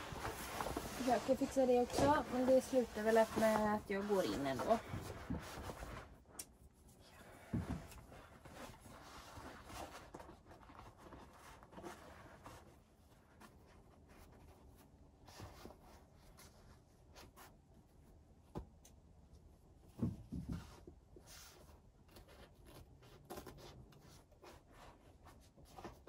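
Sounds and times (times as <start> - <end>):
stiff sheet rustling: 0.0 - 6.2.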